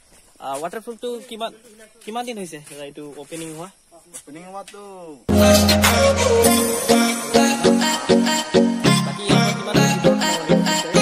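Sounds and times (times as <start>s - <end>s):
music with quick even beat: 5.3s - 11.0s.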